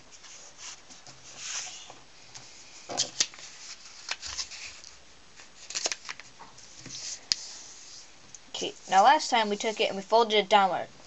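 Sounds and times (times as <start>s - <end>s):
paper rustling and creasing: 0.1s - 8.1s
sharp paper crackles: 3.1s - 6.3s.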